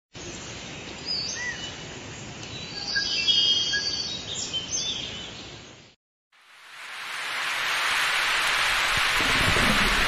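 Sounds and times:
whistled bird calls and chirps: 0:01.0 - 0:01.8, 0:02.5 - 0:05.5
steady background hiss: 0:06.4 - 0:10.0.

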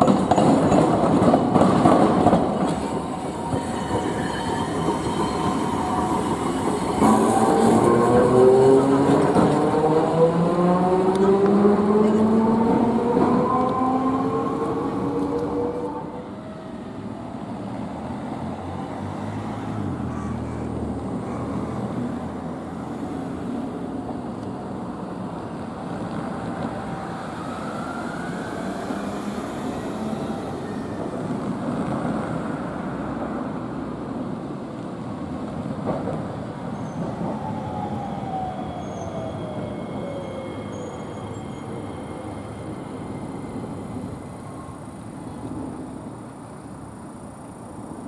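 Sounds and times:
tram clunk: 0:00.0 - 0:16.1, 0:34.8 - 0:37.4
tram motor whine: 0:00.0 - 0:18.7
road traffic noise: 0:00.0 - 0:48.0.

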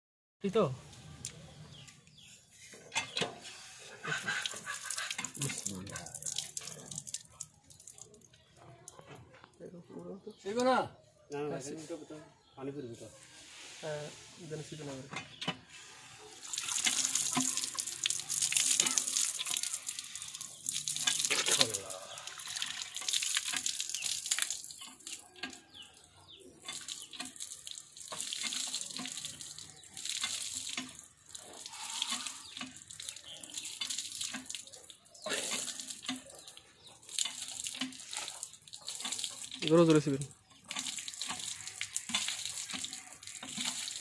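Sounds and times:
water gushing and splashing: 0:03.7 - 0:08.2, 0:15.8 - 0:44.0.

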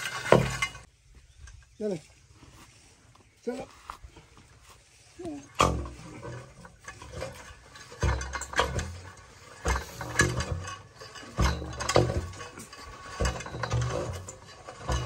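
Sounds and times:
metal drill pipe clanking and scraping: 0:00.0 - 0:01.8, 0:05.4 - 0:15.0.

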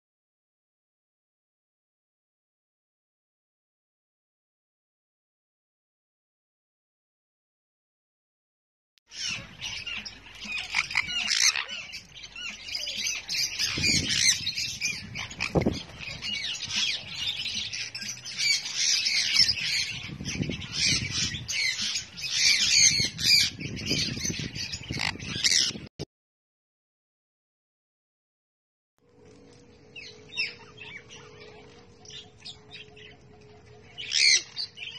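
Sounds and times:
parrots screeching: 0:09.1 - 0:23.5, 0:24.2 - 0:25.7, 0:34.0 - 0:34.7.

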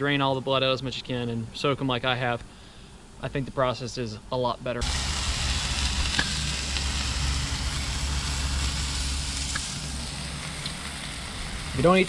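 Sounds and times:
meat sizzling on griddle: 0:04.8 - 0:12.0
small pops: 0:06.0 - 0:06.8.

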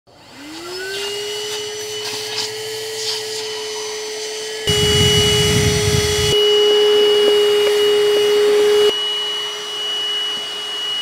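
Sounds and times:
handheld vacuum cleaner motor whine: 0:00.1 - 0:11.0.

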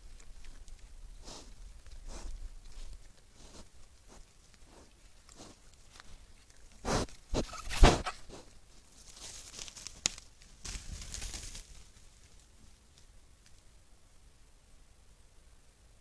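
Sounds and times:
rustling in dry leaves: 0:00.0 - 0:13.6
scuffs and crunches: 0:02.1 - 0:12.5.

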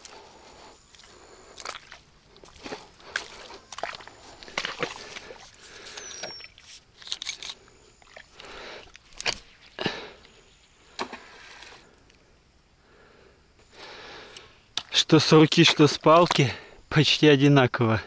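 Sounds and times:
footsteps: 0:00.0 - 0:05.9.

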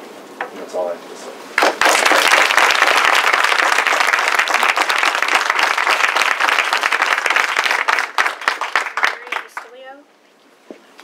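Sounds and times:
crowd applauding: 0:01.6 - 0:09.8.

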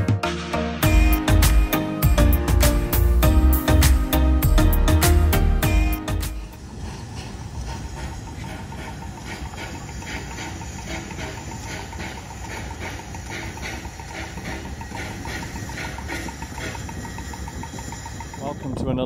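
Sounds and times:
train rumbling: 0:00.8 - 0:19.0
steam locomotive chuffing: 0:05.6 - 0:19.0
hissing steam: 0:06.4 - 0:18.7.

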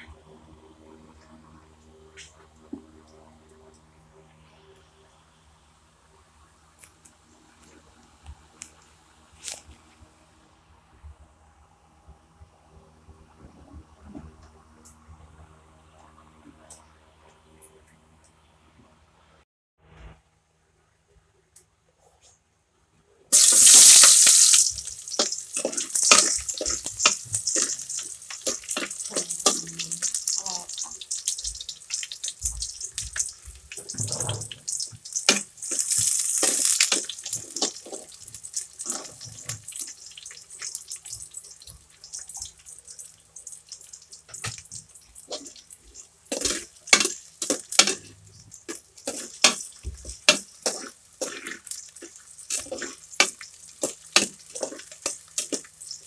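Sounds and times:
loud cooking hiss: 0:23.3 - 0:39.8.

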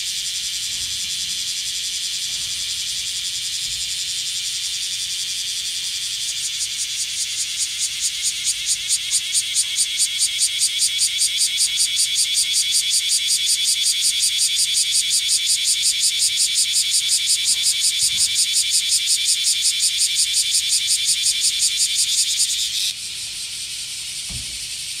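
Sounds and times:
cicada buzzing: 0:00.0 - 0:25.0.

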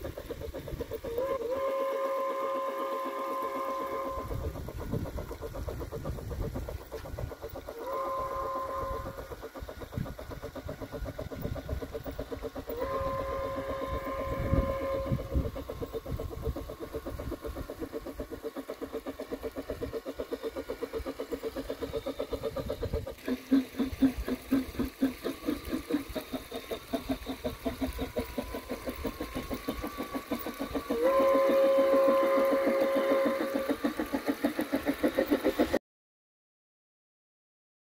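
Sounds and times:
model train steam whistle: 0:00.0 - 0:04.9, 0:07.6 - 0:09.4, 0:12.6 - 0:15.9, 0:23.1 - 0:35.8
rhythmic steam chuffing: 0:00.0 - 0:35.8
train running on track: 0:00.0 - 0:35.8.

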